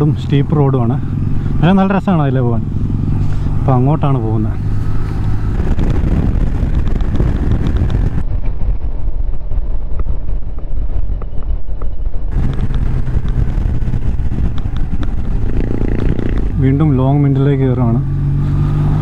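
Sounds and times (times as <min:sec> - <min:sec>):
motorcycle engine running: 0:00.0 - 0:08.2, 0:12.3 - 0:19.0
wind noise on microphone: 0:04.5 - 0:17.2.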